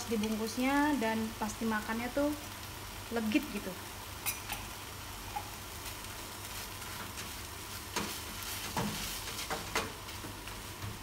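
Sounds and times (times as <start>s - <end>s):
chicken sizzling in a frying pan: 0.0s - 11.0s
spatula clicking and scraping pan: 6.5s - 11.0s.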